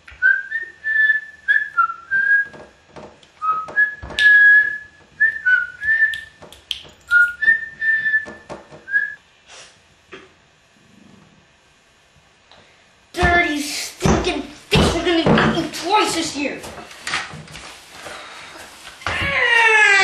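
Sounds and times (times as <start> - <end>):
boy whistling a tune: 0.2 - 2.5, 3.4 - 6.4, 7.1 - 9.2
knock: 2.4 - 4.3, 8.2 - 9.0.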